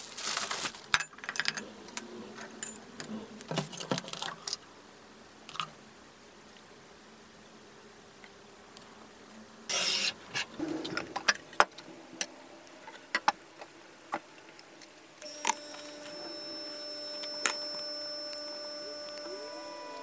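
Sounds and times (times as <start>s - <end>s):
steady hum with high tone: 6.9s - 20.0s.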